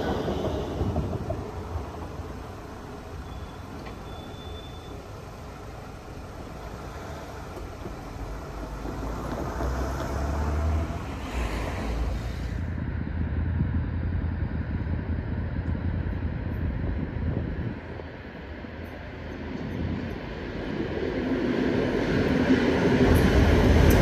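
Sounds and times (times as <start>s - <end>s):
hiss: 0.0s - 8.9s, 9.5s - 12.8s
vehicle rumble: 0.0s - 24.0s
wind on microphone: 11.0s - 18.6s.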